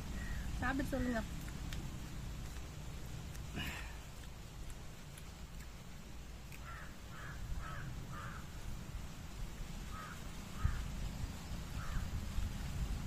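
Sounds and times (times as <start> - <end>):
crow cawing: 6.6 - 8.6, 9.9 - 10.9, 11.8 - 12.1.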